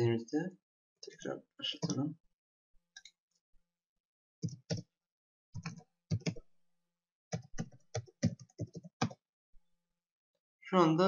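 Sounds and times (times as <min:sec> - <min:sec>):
keyboard typing: 0:04.4 - 0:04.9, 0:05.6 - 0:06.5, 0:07.3 - 0:09.2.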